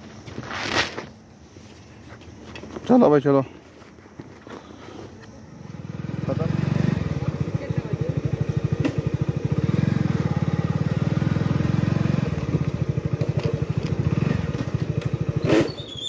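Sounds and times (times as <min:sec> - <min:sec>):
motorcycle engine running: 0:05.4 - 0:15.8.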